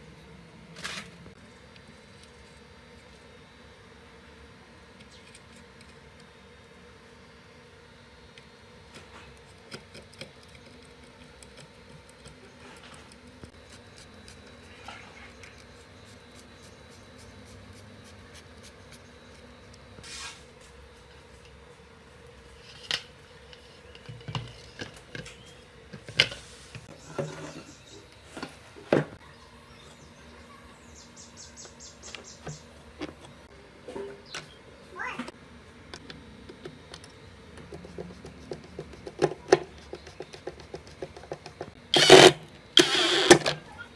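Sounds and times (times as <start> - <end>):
faint steady hum: 0.0 - 43.9.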